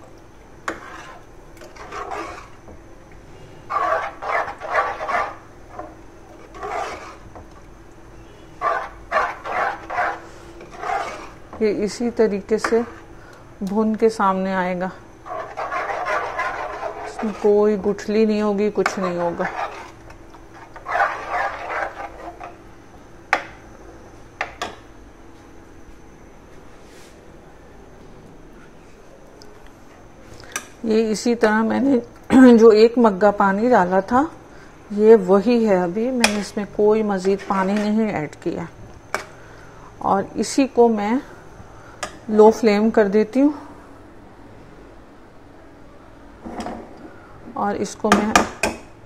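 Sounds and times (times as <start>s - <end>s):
faint steady hum: 0.0s - 49.0s
ladle stirring wet mince: 0.6s - 13.1s, 15.2s - 22.6s
metal spoon scraping a steel pot: 0.7s - 2.6s, 3.7s - 7.2s, 8.6s - 11.4s, 15.2s - 17.6s, 18.8s - 20.0s, 20.6s - 22.6s.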